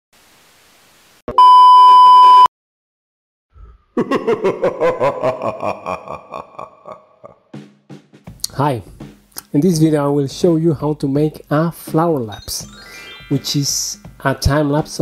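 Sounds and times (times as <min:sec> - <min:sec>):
tv static hiss: 0:00.2 - 0:01.2
test-tone beep: 0:01.3 - 0:02.5.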